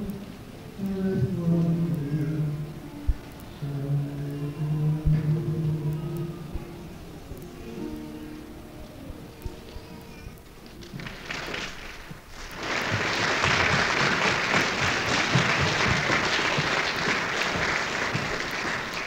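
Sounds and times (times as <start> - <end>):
audience applause: 9.6 - 19.0.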